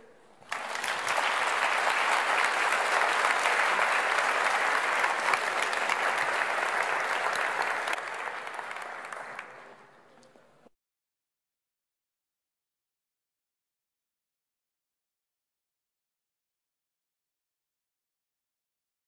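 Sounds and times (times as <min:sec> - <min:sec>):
audience applauding: 0:00.4 - 0:10.0.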